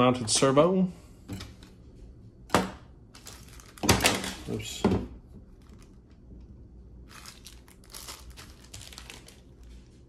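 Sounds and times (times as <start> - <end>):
plastic bag crinkling: 3.1 - 4.7, 5.5 - 6.3, 7.0 - 10.0.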